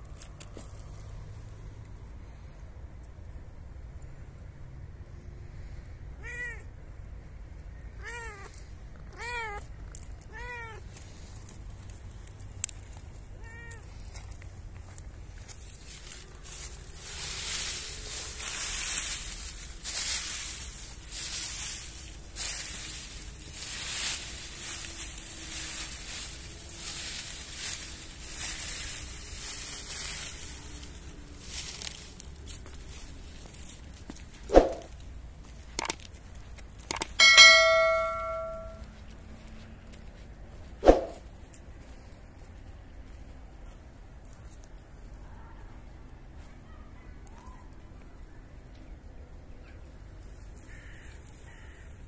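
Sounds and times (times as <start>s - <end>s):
metal pot clanging: 37.2s - 38.8s.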